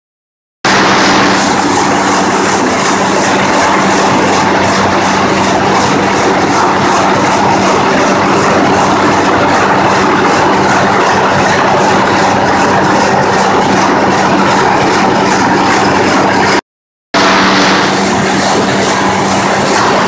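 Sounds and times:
sawmill machinery din: 0.7 - 16.6, 17.2 - 20.0
low hum: 17.2 - 20.0.

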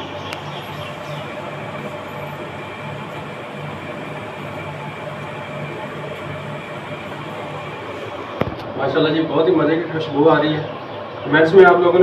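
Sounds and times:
machine humming and hissing: 0.0 - 11.2
low pulsing throb: 0.5 - 9.0.

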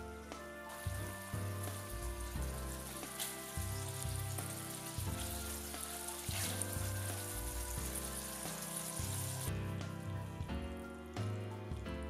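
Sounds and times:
instrumental background music: 0.0 - 12.0
bacon sizzling in butter: 0.1 - 9.5.

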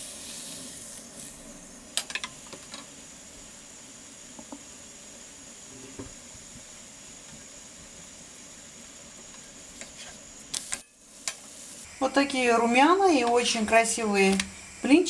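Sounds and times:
batter sizzling in frying pan: 0.0 - 12.0.

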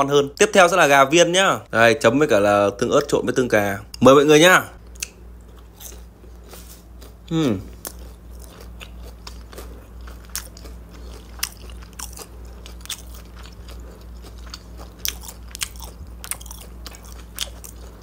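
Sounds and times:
steady low hum: 0.0 - 18.0
chewing crunches: 4.8 - 18.0.

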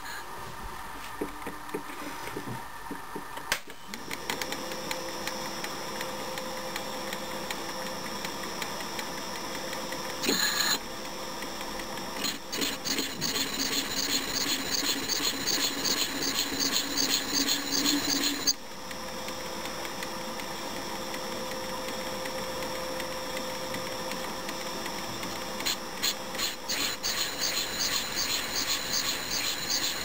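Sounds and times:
lathe motor running: 12.2 - 18.6, 25.6 - 30.0
tool scraping metal: 12.2 - 18.6, 26.0 - 30.0.

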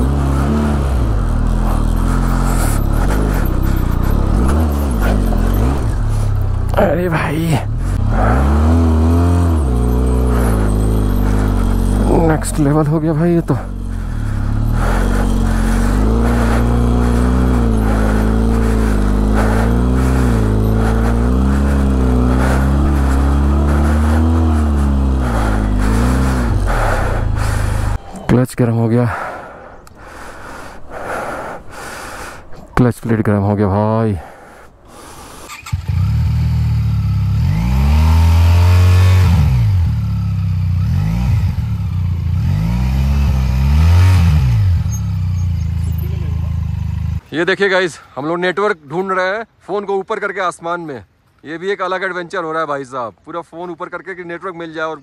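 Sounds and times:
motorcycle engine revving: 0.0 - 28.0, 34.9 - 47.3.

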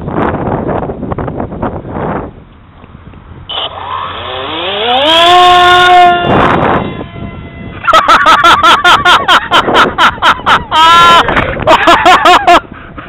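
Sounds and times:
wind buffeting microphone: 0.0 - 13.0
electric motor whine: 3.4 - 8.4.

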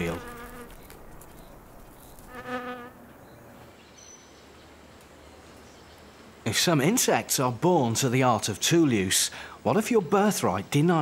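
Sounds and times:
insect wing buzzing: 0.0 - 3.0
faint background hiss: 0.0 - 11.0.

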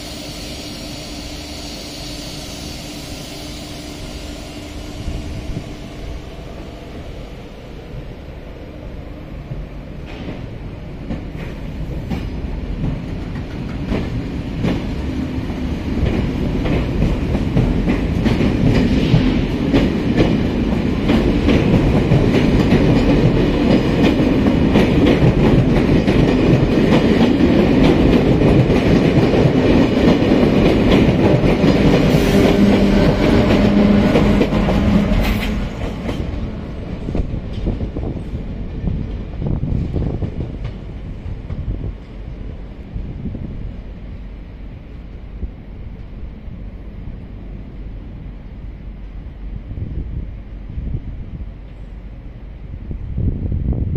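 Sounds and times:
train wheels clicking over rail joints: 9.9 - 42.4.

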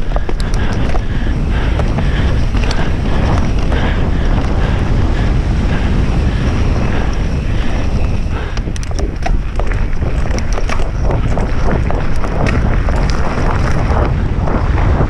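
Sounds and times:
bike rattling clicks: 0.0 - 15.0
tyres rumbling over dirt: 0.0 - 15.0
wind rushing over microphone: 0.0 - 15.0.

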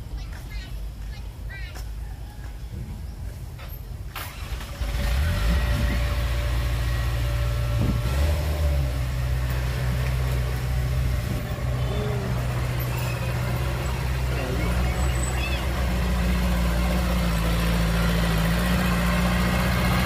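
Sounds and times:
heavy diesel engine running: 4.2 - 20.0.

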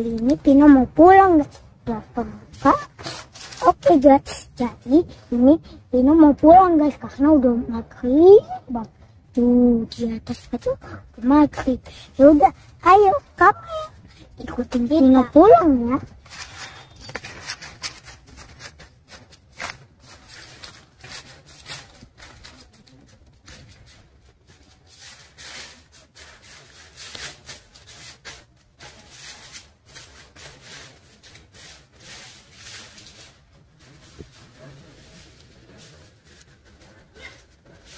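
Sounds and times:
footsteps and rustling: 0.0 - 5.4, 9.8 - 37.9.

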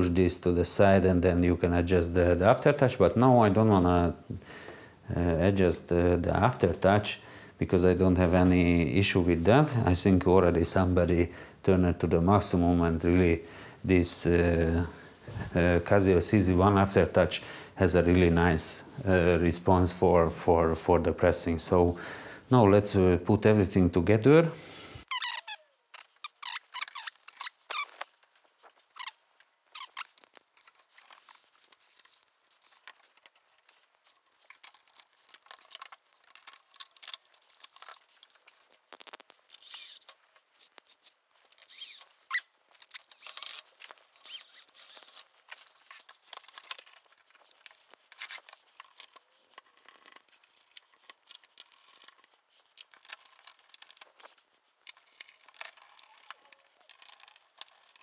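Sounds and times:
faint clicks and scrapes of handling: 25.0 - 58.0.

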